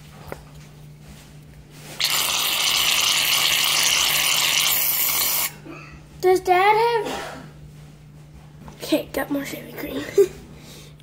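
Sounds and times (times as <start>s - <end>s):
aerosol can hissing: 2.0s - 5.5s.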